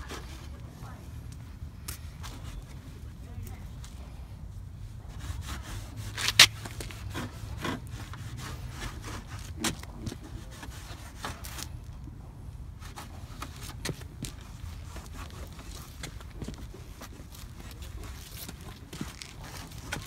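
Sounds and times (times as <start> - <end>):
rag wiping plastic bumper: 5.0 - 11.7, 12.8 - 20.0.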